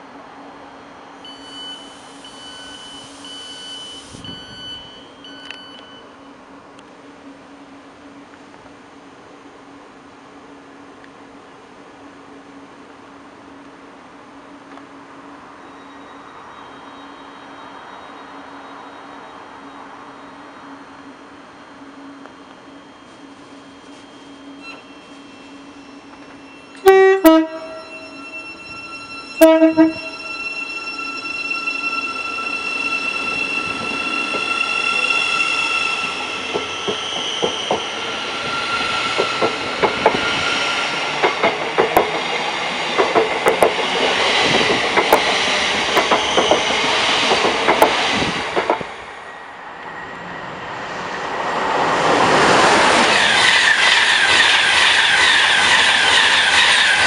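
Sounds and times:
train electric hum: 0:00.0 - 0:57.0
high-pitched door warning beeps: 0:01.2 - 0:06.2, 0:22.4 - 0:39.6
train two-tone horn: 0:23.9 - 0:37.0.

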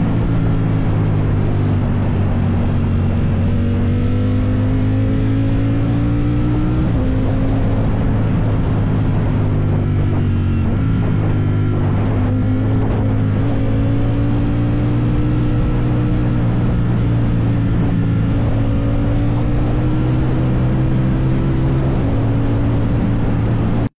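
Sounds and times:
motorcycle engine cruising: 0:00.0 - 0:23.9
road noise: 0:00.0 - 0:23.9
wind noise: 0:00.0 - 0:23.9.

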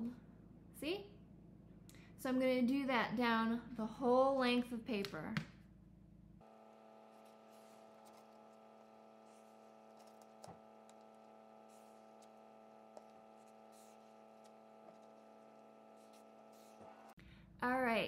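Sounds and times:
steady low hum: 0:05.6 - 0:17.6
marker scratching on paper: 0:07.1 - 0:17.2.

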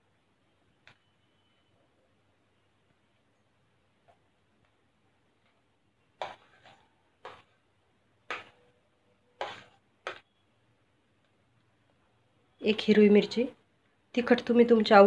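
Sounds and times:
steel spoon tapping and scraping: 0:06.2 - 0:07.5, 0:08.3 - 0:08.6.

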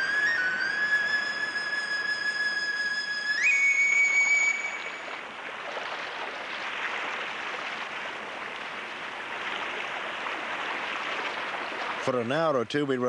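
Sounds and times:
whistle-like musical note: 0:00.0 - 0:05.2
river water rushing: 0:00.0 - 0:12.4
people splashing in water: 0:04.5 - 0:12.2.

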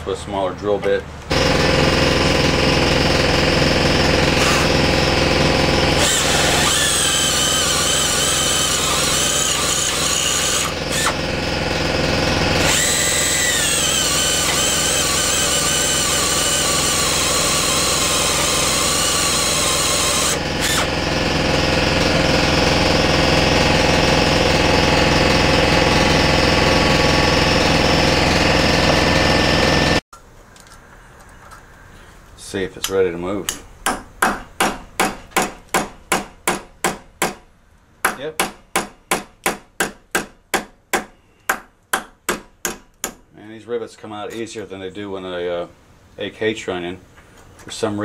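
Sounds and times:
steady machine hum: 0:01.3 - 0:30.0
drill bit squealing in steel: 0:06.0 - 0:11.1.

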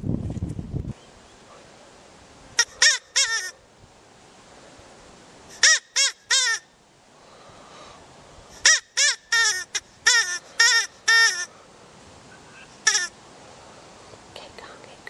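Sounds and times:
rabbit distress squeals: 0:02.6 - 0:03.6, 0:08.6 - 0:11.5, 0:12.8 - 0:13.1.

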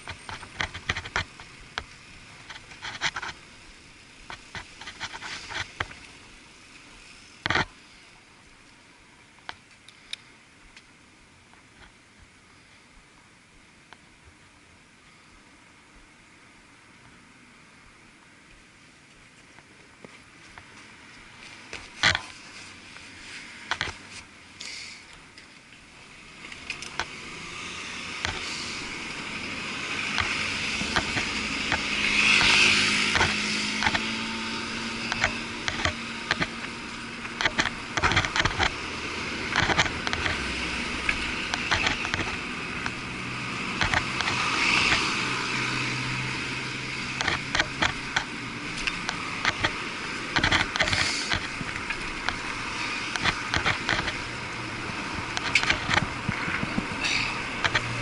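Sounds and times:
muffled road traffic: 0:00.0 - 0:58.0
cars passing: 0:20.2 - 0:58.0.

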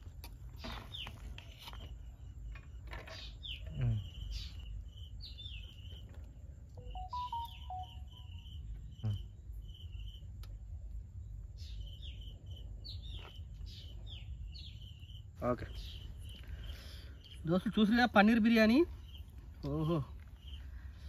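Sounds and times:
bird chirping: 0:00.6 - 0:10.4, 0:11.2 - 0:21.0
musical tones: 0:06.8 - 0:08.4.

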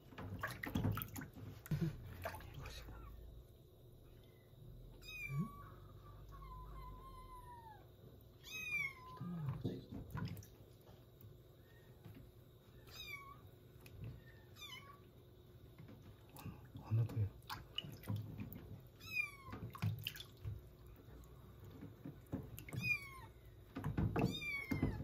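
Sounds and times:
kitten mewing: 0:05.0 - 0:07.8.

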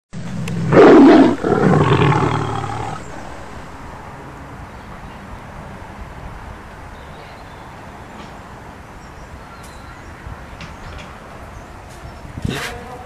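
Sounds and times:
tiger roaring: 0:00.2 - 0:04.0.

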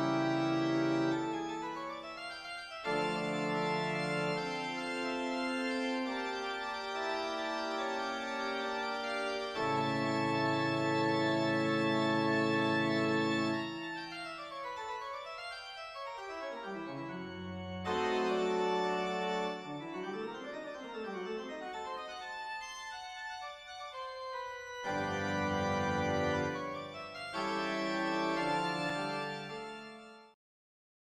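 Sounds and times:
organ playing chords: 0:00.0 - 0:30.3.

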